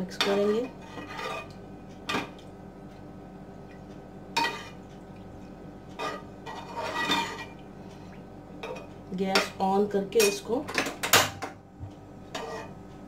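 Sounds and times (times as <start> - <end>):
metal spoon scraping a pot: 0.2 - 1.5, 4.4 - 4.8, 6.0 - 7.6, 12.3 - 12.8.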